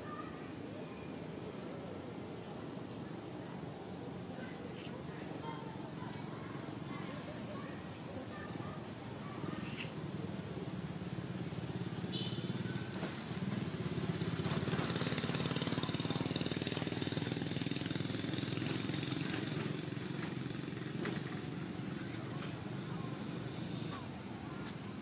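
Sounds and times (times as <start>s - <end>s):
small engine running: 13.6s - 22.0s.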